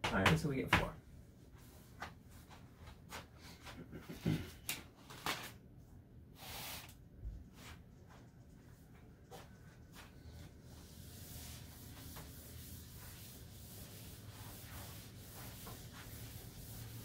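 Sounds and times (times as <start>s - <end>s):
eraser rubbing on chalkboard: 10.7s - 17.0s.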